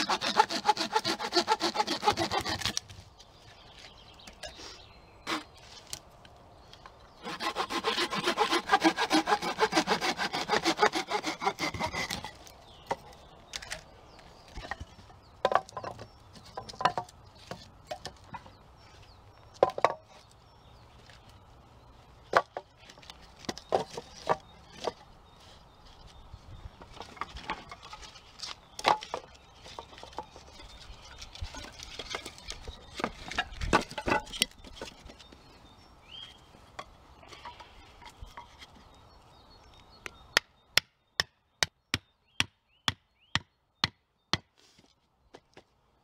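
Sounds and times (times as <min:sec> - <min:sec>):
wooden poles clattering: 0:11.6 - 0:18.5, 0:19.6 - 0:20.2, 0:22.3 - 0:25.1, 0:26.8 - 0:35.3
hatchet striking wood: 0:40.4 - 0:44.5.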